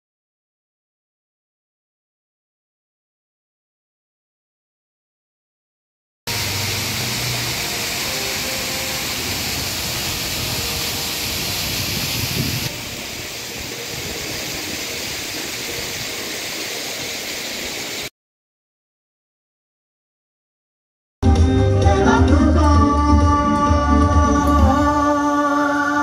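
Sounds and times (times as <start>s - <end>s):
outdoor background noise: 6.3s - 18.1s
water splashing down waterfall: 6.3s - 18.1s.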